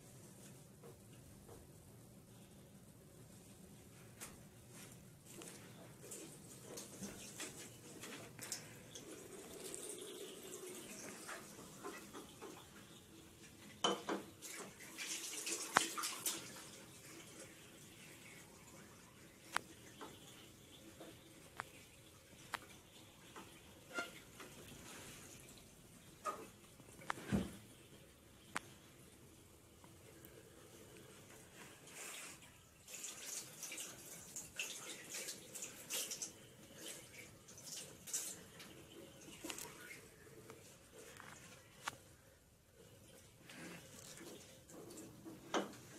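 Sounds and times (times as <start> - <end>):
tap water running and splashing: 4.1 - 45.9
tap running into sink: 13.8 - 14.8.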